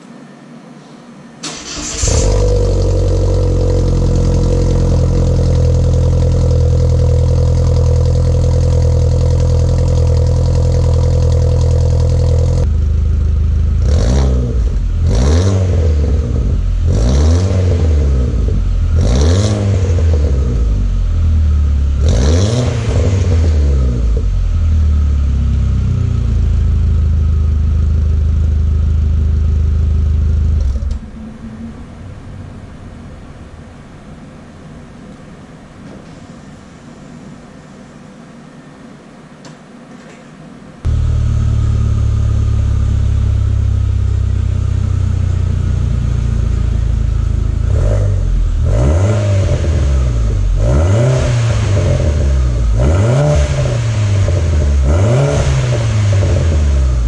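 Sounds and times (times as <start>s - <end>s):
car engine revving: 1.4s - 32.9s, 40.9s - 57.0s
car engine idling: 1.5s - 14.0s, 22.8s - 35.7s, 40.8s - 48.7s.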